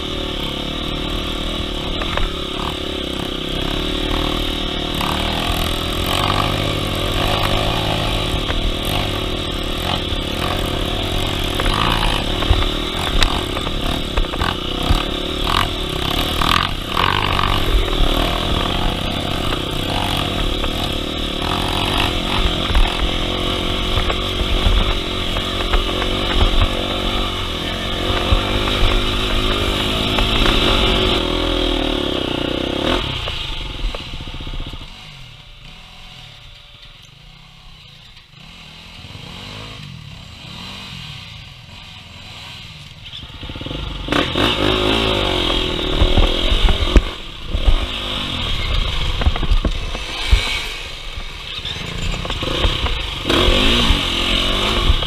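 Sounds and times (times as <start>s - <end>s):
bike rattling over rough ground: 0.0s - 55.0s
dirt bike engine under load: 0.0s - 55.0s.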